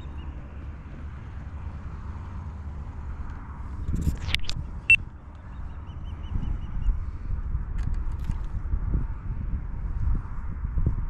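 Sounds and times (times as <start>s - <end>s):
wind buffeting microphone: 3.1s - 11.0s.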